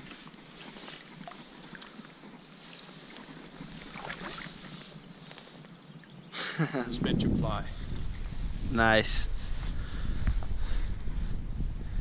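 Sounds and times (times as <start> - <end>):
faint clicks and splashes: 0.0 - 4.8
water lapping: 0.0 - 5.4
wind on microphone: 6.8 - 12.0.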